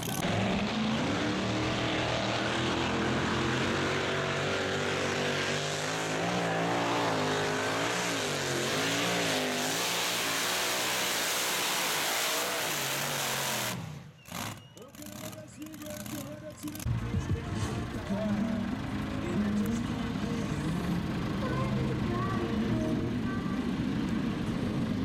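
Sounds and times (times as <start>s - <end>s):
engine revving at full throttle: 0.0s - 14.6s.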